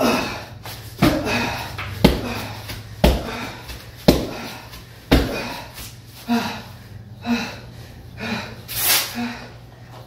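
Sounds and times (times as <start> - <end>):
hard voiced breaths: 0.0 - 10.0
knee strikes thudding into punching bag: 1.0 - 5.7.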